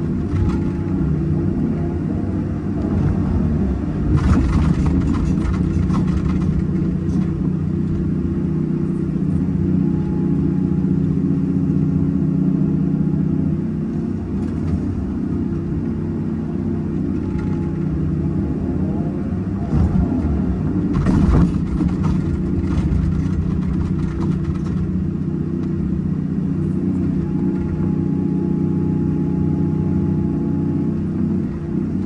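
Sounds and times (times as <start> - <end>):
rattling and scraping: 0.0 - 1.2, 4.0 - 8.2, 17.0 - 18.2, 19.7 - 26.0
excavator diesel engine running: 0.0 - 32.0.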